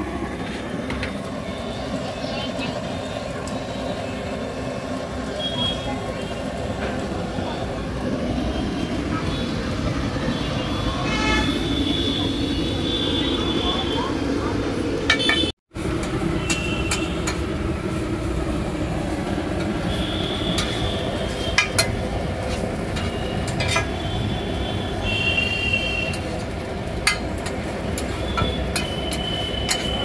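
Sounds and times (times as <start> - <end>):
metal spatulas scraping on griddle: 16.4 - 17.4, 20.5 - 24.0, 26.0 - 30.0.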